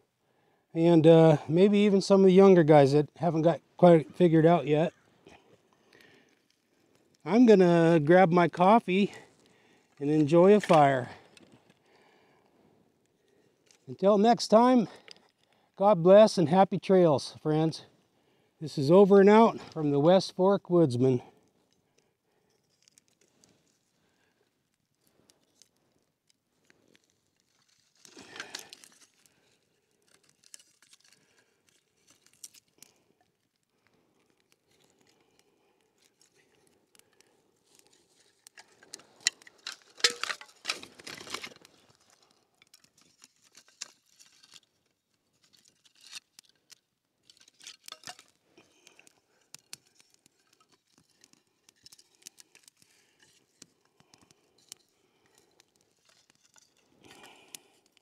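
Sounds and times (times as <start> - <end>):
campfire crackling: 0.1 - 58.0
dry cracks and rustles: 1.4 - 15.9, 21.0 - 58.0
sticks snapping: 36.0 - 44.7, 45.5 - 58.0.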